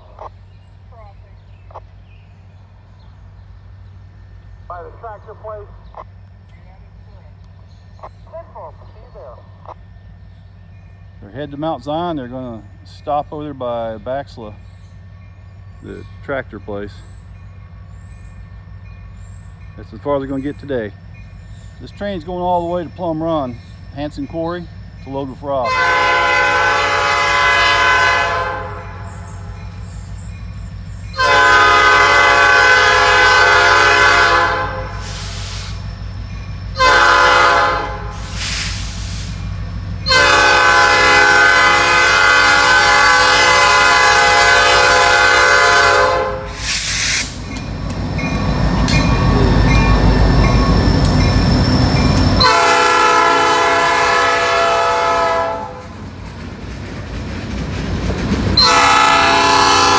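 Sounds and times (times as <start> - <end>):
diesel locomotive engines rumbling: 0.0 - 59.9
locomotive air horn blasts: 25.6 - 29.5, 31.2 - 35.8, 36.8 - 39.3, 40.0 - 47.3, 52.4 - 56.0, 58.6 - 59.9.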